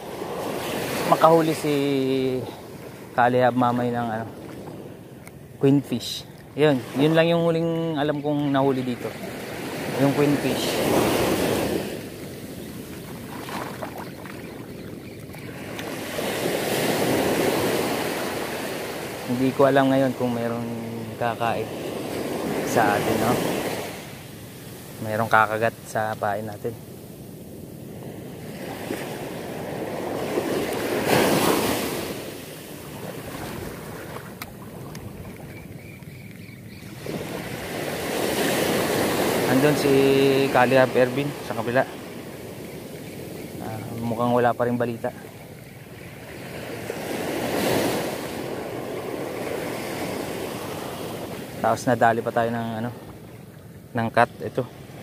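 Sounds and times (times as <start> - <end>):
small surf washing up a beach: 0.0 - 35.9, 36.8 - 55.0.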